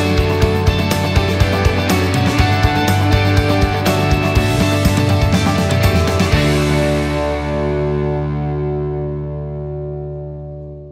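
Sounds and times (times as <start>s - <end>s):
background music beat: 0.0s - 8.6s
held guitar chord: 0.0s - 10.9s.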